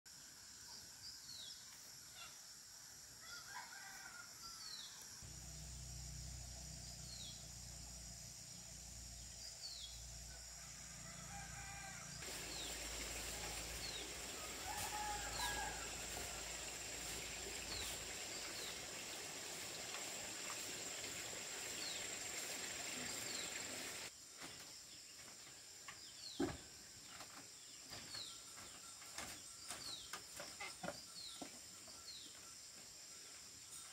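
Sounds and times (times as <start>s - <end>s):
rooster crowing: 3.2s - 4.8s, 10.6s - 12.3s, 14.2s - 16.6s.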